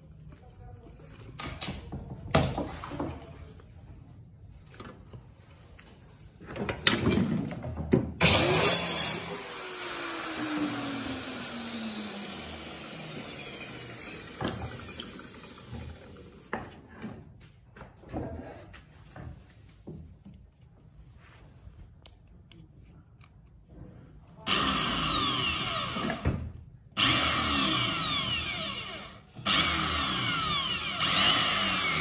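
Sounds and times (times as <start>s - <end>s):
power tool whining: 8.2s - 16.4s, 24.5s - 26.4s, 27.0s - 32.0s.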